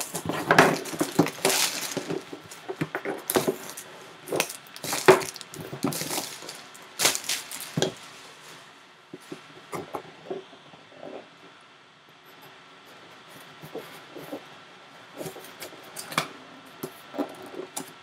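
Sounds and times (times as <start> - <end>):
plastic shrink wrap crinkling: 0.0 - 8.8.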